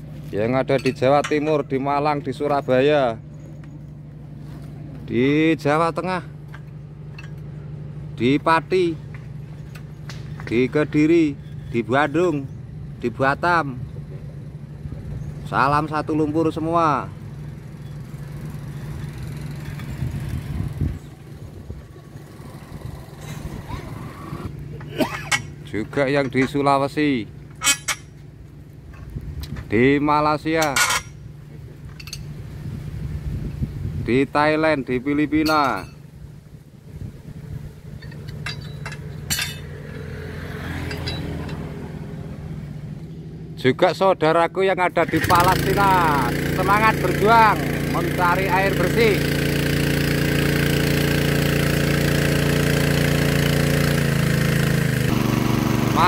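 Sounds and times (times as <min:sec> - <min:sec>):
water pump engine droning: 0:00.0 - 0:33.9, 0:34.5 - 0:56.0
wrench clinking on steel pipe: 0:00.6 - 0:01.8, 0:25.2 - 0:26.7, 0:27.5 - 0:28.2, 0:30.5 - 0:31.3, 0:31.9 - 0:32.3, 0:35.4 - 0:36.0, 0:38.0 - 0:40.0, 0:40.8 - 0:41.6.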